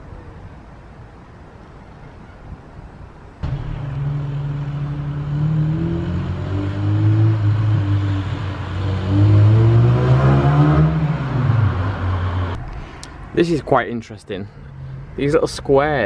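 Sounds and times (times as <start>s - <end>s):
car engine accelerating: 3.4s - 12.6s.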